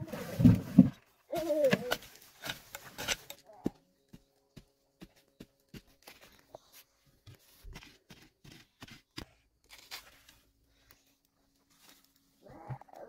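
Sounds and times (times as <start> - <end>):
soil and roots scraping and snapping: 0.0 - 4.6, 7.3 - 13.0.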